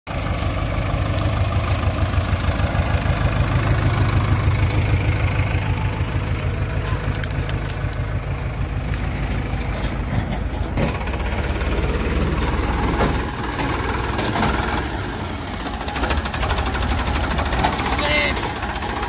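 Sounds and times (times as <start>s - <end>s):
backhoe loader diesel engine: 0.1s - 19.0s
tractor diesel engine: 0.1s - 19.0s.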